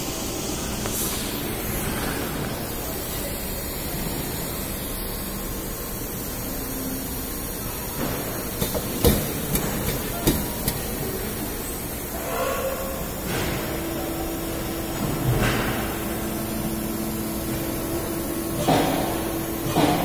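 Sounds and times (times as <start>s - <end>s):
pad printing machine hissing: 0.0s - 20.0s
sharp clicks and knocks: 8.0s - 11.0s, 18.5s - 20.0s.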